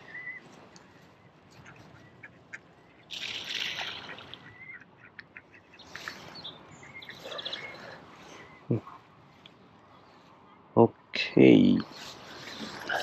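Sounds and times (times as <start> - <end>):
bird chirps: 0.0 - 4.8, 5.4 - 9.0.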